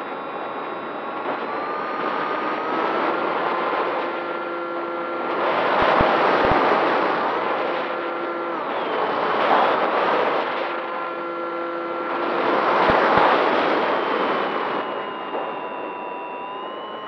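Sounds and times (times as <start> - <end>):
wind rush on microphone: 0.0 - 17.0
model aircraft propeller motor: 15.0 - 17.0.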